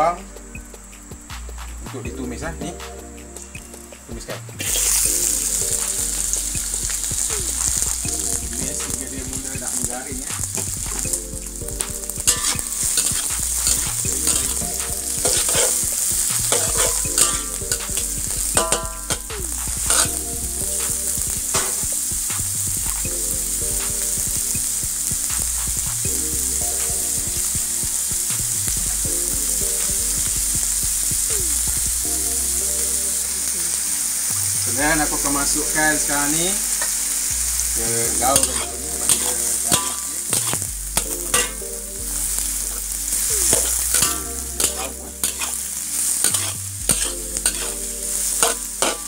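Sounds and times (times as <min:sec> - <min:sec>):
onion sizzling in oil: 0:04.6 - 0:49.0
stirring clicks and scrapes: 0:38.4 - 0:41.6, 0:46.2 - 0:47.8.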